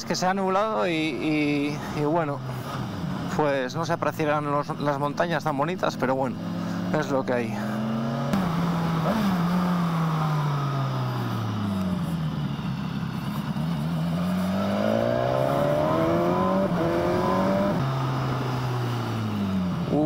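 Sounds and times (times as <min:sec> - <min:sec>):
wind and road noise: 0:00.0 - 0:20.0
motorcycle engine accelerating: 0:05.6 - 0:20.0.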